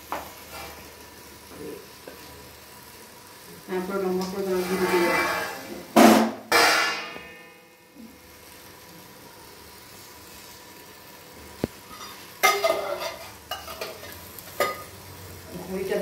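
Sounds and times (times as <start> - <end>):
rice rustling and scraping: 0.0 - 1.2, 4.4 - 6.2, 9.9 - 15.0
faint sizzle from pot: 0.0 - 16.0.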